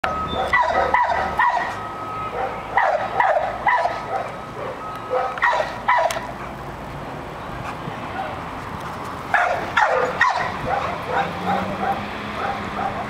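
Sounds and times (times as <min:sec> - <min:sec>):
dog barking: 0:00.4 - 0:01.7, 0:02.3 - 0:06.3, 0:09.4 - 0:13.0.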